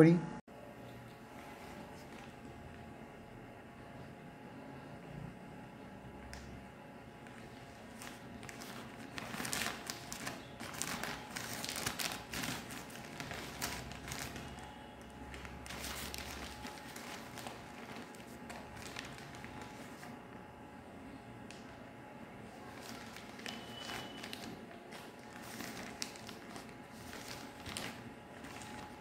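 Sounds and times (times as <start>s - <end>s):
plastic bag crinkling: 7.2s - 20.2s, 22.5s - 29.0s
plastic bag tearing open: 7.8s - 14.7s, 15.3s - 19.8s, 22.6s - 29.0s.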